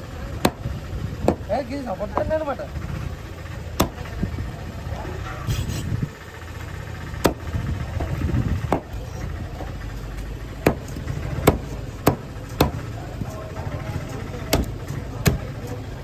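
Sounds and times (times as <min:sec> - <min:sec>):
low steady rumble: 0:00.0 - 0:16.0
cleaver chopping on wooden block: 0:00.4 - 0:01.5, 0:03.8 - 0:04.0, 0:07.2 - 0:07.5, 0:10.6 - 0:12.9, 0:14.5 - 0:15.6.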